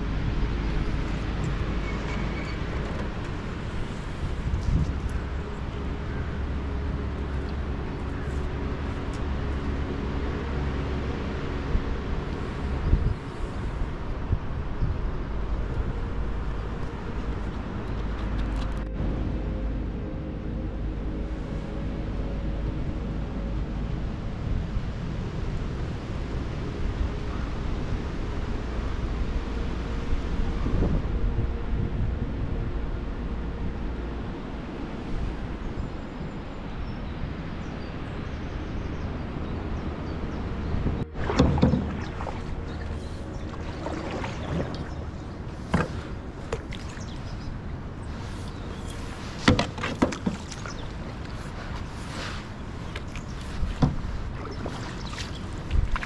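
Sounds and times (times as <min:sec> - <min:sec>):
wind buffeting microphone: 0:00.0 - 0:08.8, 0:11.8 - 0:18.8, 0:21.8 - 0:56.0
low rumble: 0:00.0 - 0:49.4
faint water sounds: 0:00.0 - 0:56.0
sharp knocks on canoe: 0:41.2 - 0:42.4, 0:45.7 - 0:46.9, 0:49.4 - 0:50.7.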